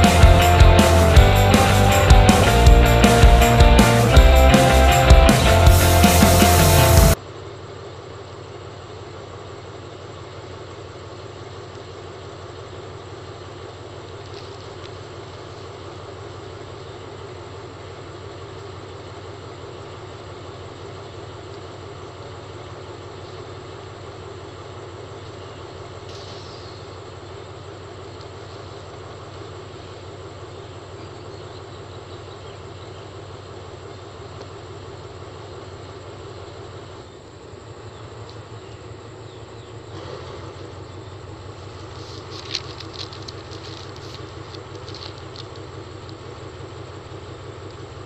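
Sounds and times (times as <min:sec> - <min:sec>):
constant hiss: 0:00.0 - 0:07.2, 0:07.8 - 0:48.0
low mechanical hum: 0:00.0 - 0:48.0
faint ticks: 0:14.1 - 0:15.8, 0:28.1 - 0:28.7, 0:38.2 - 0:38.5, 0:41.6 - 0:46.4, 0:47.6 - 0:47.8.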